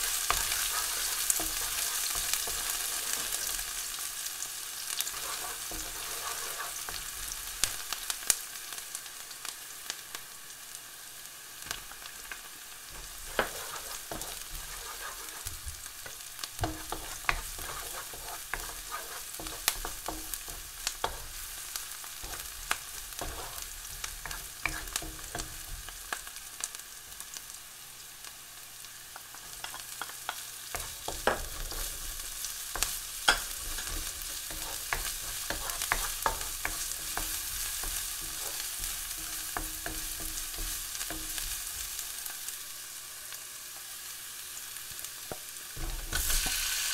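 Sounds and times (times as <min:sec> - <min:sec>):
wooden spatula scraping pan: 0:00.0 - 0:03.9, 0:05.0 - 0:07.4, 0:12.9 - 0:25.9, 0:30.7 - 0:42.0
onion sizzling in oil: 0:00.0 - 0:46.9.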